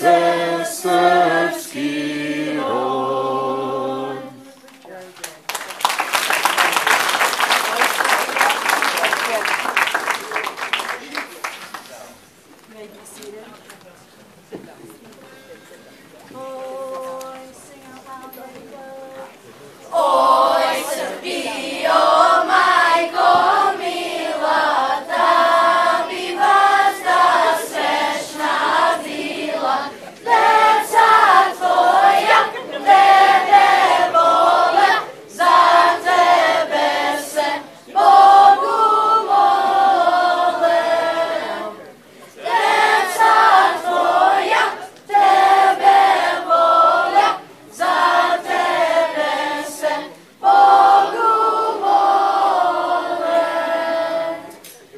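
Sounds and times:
children's choir singing: 0:00.0 - 0:04.6, 0:16.3 - 0:54.8.

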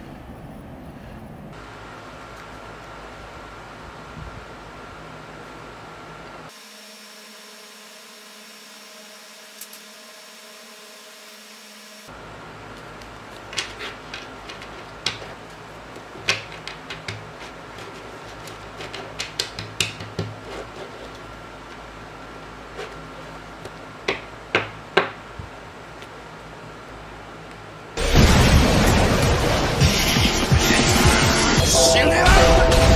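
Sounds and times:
cards tapping and clicking: 0:13.0 - 0:21.2.

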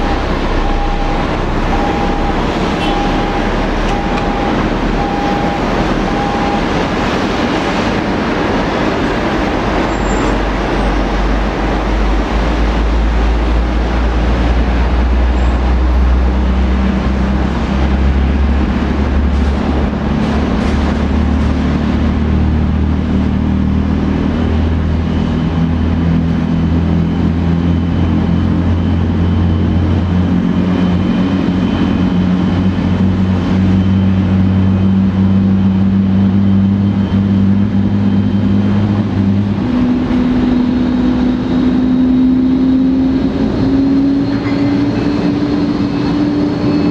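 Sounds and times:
airliner engine rumble and hum: 0:00.0 - 0:46.9.

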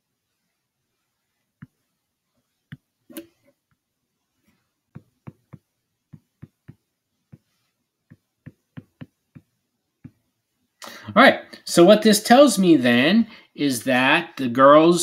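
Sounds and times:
stylus tapping on touchscreen: 0:01.6 - 0:01.9, 0:02.7 - 0:03.8, 0:04.9 - 0:10.3.

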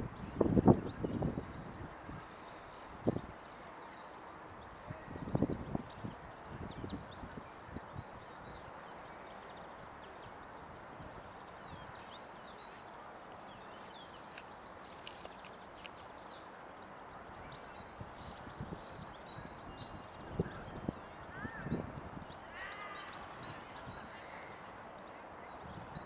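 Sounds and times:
songbirds chirping: 0:00.0 - 0:26.0.

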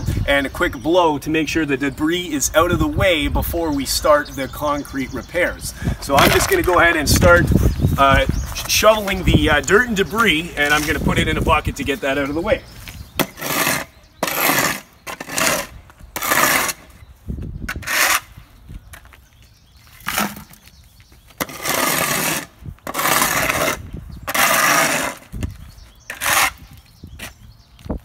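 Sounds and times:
shovel scraping gravel off asphalt: 0:06.1 - 0:07.6, 0:08.5 - 0:17.0, 0:17.7 - 0:18.4, 0:19.9 - 0:20.6, 0:21.3 - 0:25.4, 0:26.1 - 0:27.4.

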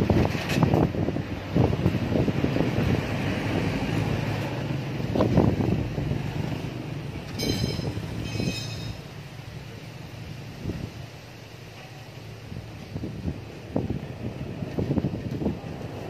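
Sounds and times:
short squeaks: 0:07.3 - 0:09.0.

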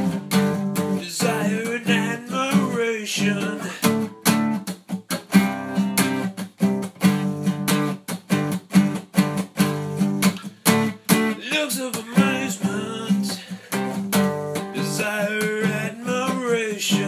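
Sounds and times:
acoustic guitar strumming: 0:00.0 - 0:17.0
person singing wordlessly: 0:01.0 - 0:04.1, 0:11.2 - 0:13.7, 0:14.5 - 0:17.0.

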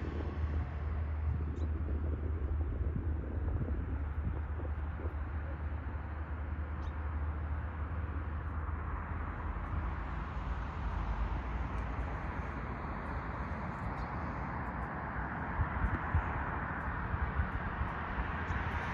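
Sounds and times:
low rumble: 0:00.0 - 0:18.9.

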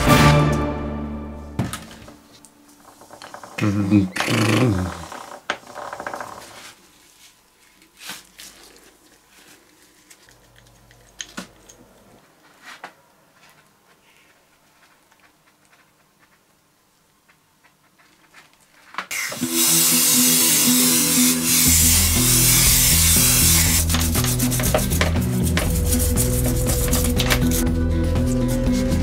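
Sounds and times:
fingers smearing grease: 0:21.6 - 0:27.6.

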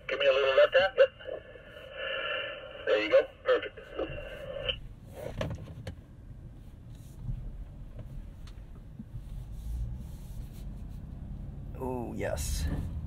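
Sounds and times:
car engine low rumble: 0:03.8 - 0:13.0.

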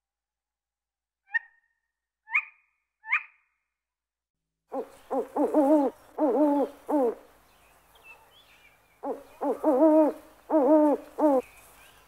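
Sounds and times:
owl calls: 0:04.7 - 0:07.2, 0:09.0 - 0:11.4
owl hooting: 0:04.7 - 0:07.3, 0:09.0 - 0:11.4
faint background hiss: 0:04.7 - 0:12.0.

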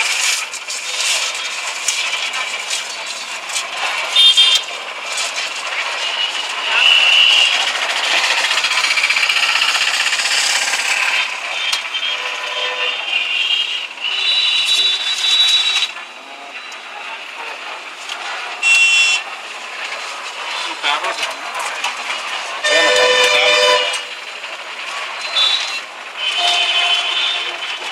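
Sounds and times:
roadside traffic noise: 0:00.0 - 0:27.9
vehicle horns: 0:04.0 - 0:04.7, 0:05.9 - 0:08.8, 0:09.7 - 0:16.0, 0:18.5 - 0:19.4, 0:22.6 - 0:24.2, 0:25.2 - 0:27.9.

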